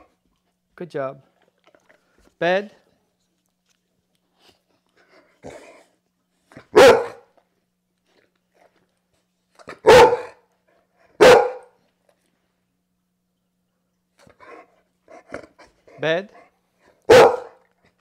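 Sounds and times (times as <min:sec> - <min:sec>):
dog barking: 0:06.6 - 0:07.3, 0:09.7 - 0:10.4, 0:11.2 - 0:11.8, 0:17.1 - 0:17.6.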